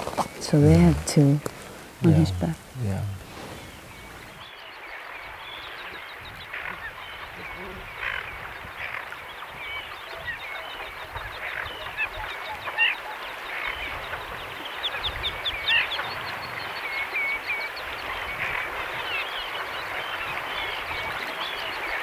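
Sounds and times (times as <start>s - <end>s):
distant bird calls: 0.0s - 22.0s
birds chirping and squeaking: 3.2s - 4.4s.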